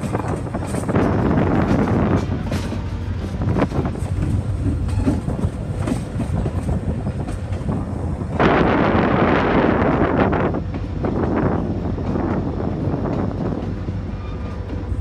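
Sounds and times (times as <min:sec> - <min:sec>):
wheels clicking over rail joints: 0:00.0 - 0:08.6
rushing wind noise: 0:00.0 - 0:15.0
train rumbling: 0:00.0 - 0:15.0.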